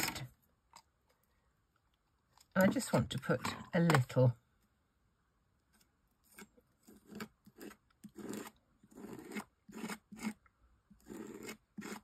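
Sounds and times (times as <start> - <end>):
palette knife scraping paste: 5.7 - 12.0.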